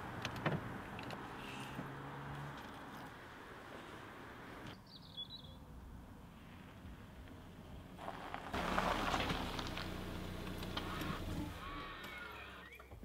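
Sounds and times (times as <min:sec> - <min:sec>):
distant traffic: 0:00.0 - 0:12.6
small bird chirping: 0:04.7 - 0:05.6.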